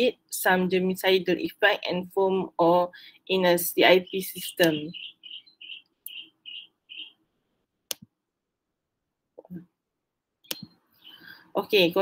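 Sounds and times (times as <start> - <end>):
computer mouse clicks: 10.4 - 10.8.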